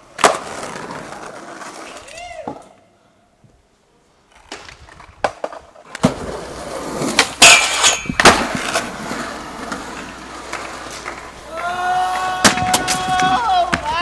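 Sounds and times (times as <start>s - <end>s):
skateboard clacks: 0.0s - 2.7s, 7.0s - 14.0s
skateboard slap: 0.0s - 2.7s, 4.5s - 14.0s
skateboard scrape: 0.0s - 14.0s
skateboard wheels rolling on concrete: 0.0s - 14.0s.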